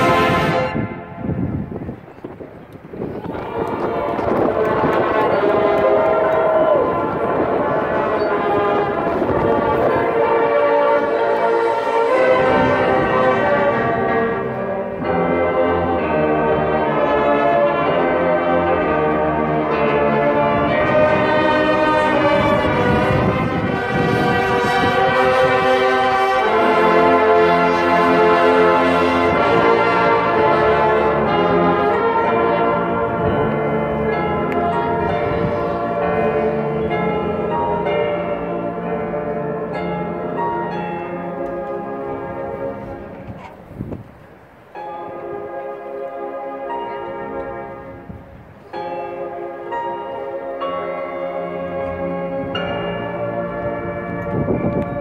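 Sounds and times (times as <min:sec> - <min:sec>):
marching band playing: 0:00.0 - 0:01.7, 0:03.2 - 0:43.9.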